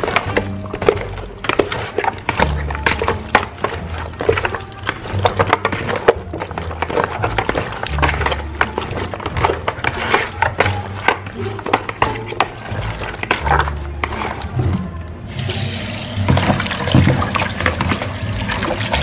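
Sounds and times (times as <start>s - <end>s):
background music with bass: 0.0s - 19.0s
tap water running into bowl: 15.3s - 19.0s.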